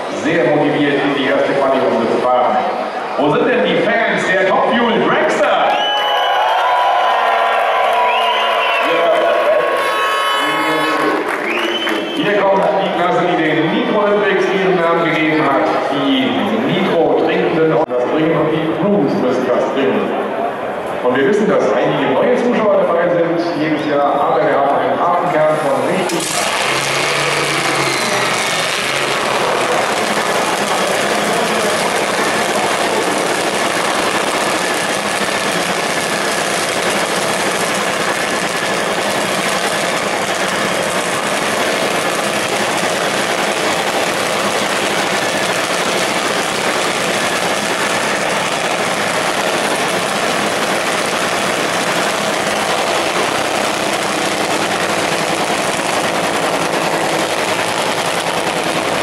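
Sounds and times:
dragster engine idling: 0:23.8 - 0:59.0.

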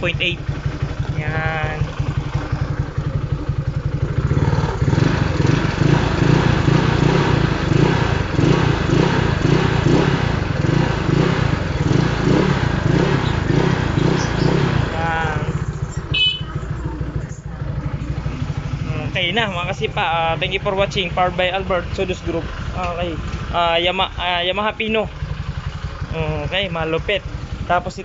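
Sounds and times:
scooter engine idling: 0:00.0 - 0:28.0.

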